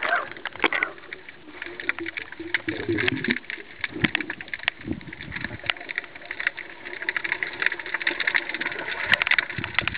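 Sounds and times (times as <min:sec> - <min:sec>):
dense crackle of small clicks: 0:00.0 - 0:09.9
water movement: 0:00.0 - 0:09.9.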